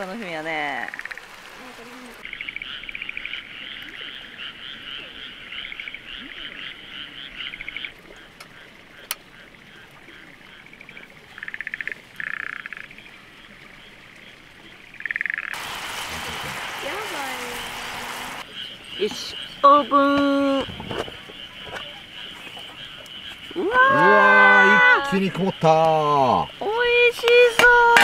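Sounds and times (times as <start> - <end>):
frogs croaking in chorus: 0.7 - 1.5, 2.1 - 28.0
steady hiss: 15.6 - 18.5.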